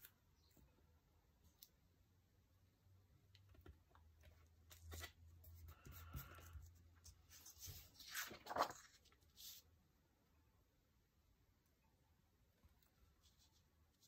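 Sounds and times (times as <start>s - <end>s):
paper pages rustling: 4.6s - 9.6s.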